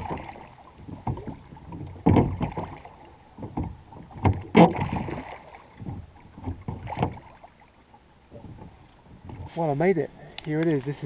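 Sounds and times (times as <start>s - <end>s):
oars knocking in rowlocks: 0.0s - 7.6s
oar blades dipping into water: 0.0s - 9.6s.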